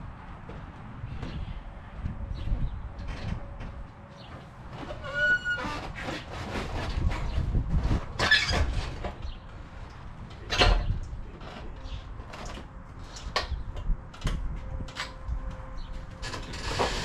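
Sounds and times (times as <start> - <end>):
heavy vinyl scraping and knocking: 2.4 - 9.4, 16.2 - 17.0.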